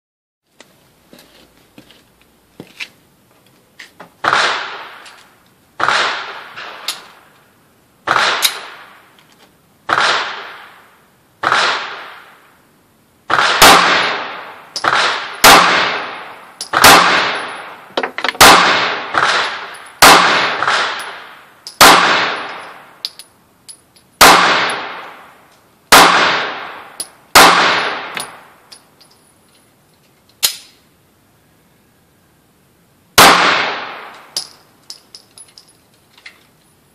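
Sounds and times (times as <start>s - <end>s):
pistol shots echoing: 4.2s - 5.0s, 5.8s - 7.0s, 8.1s - 9.0s, 9.9s - 10.8s, 11.4s - 12.3s, 13.3s - 22.9s, 24.2s - 28.5s, 33.2s - 34.5s.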